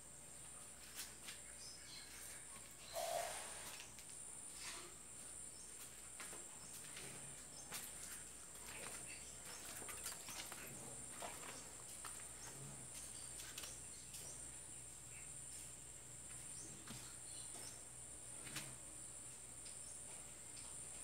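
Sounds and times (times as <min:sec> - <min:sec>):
high-pitched insect buzz: 0:02.8 - 0:03.9
light footsteps: 0:05.6 - 0:14.5.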